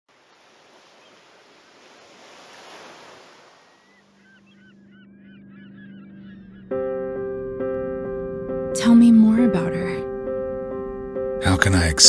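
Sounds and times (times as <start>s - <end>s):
sea waves washing in: 0.1s - 4.2s
flock of birds calling: 3.5s - 6.9s.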